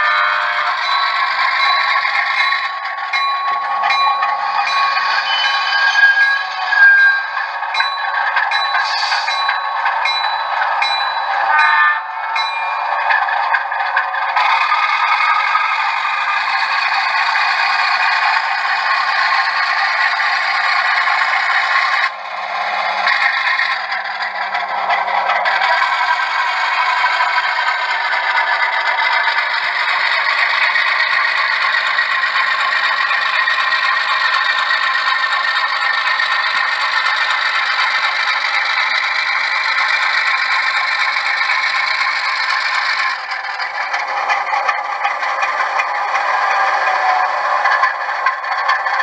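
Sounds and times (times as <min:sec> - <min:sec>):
model train rattling on track: 0:00.0 - 0:49.0.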